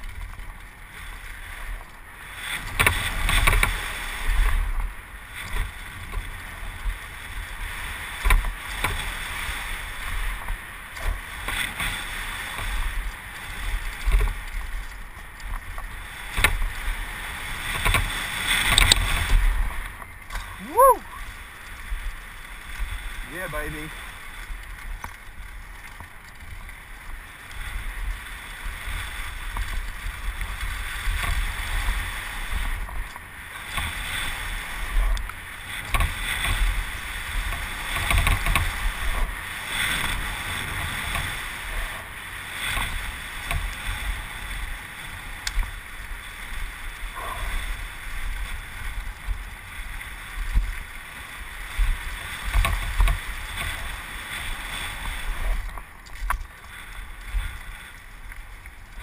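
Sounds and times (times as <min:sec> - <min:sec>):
bike tyres rolling on dirt: 0:00.0 - 0:59.0
bike knocks and rattles: 0:02.6 - 0:03.9, 0:08.2 - 0:09.4, 0:17.7 - 0:20.5, 0:35.8 - 0:41.5.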